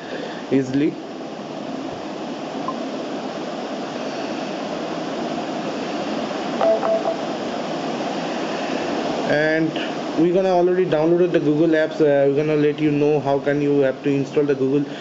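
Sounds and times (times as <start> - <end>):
steady room hiss: 0.0 - 15.0
brief single tone: 6.6 - 7.3.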